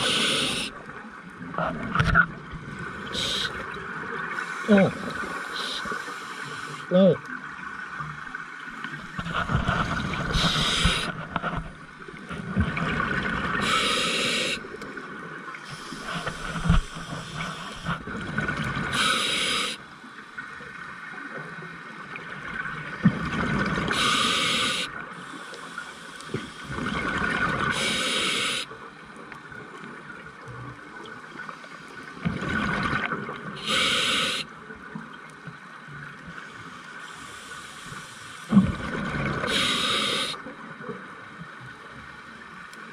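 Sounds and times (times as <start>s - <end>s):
regulator inhalation hiss: 0.0s - 0.8s, 3.2s - 3.6s, 5.3s - 6.9s, 10.3s - 11.1s, 13.6s - 14.7s, 15.7s - 18.0s, 18.9s - 19.8s, 23.9s - 26.7s, 27.7s - 28.7s, 33.6s - 34.5s, 36.6s - 38.5s, 39.5s - 40.4s
exhaled bubbles rumbling: 9.0s - 13.7s.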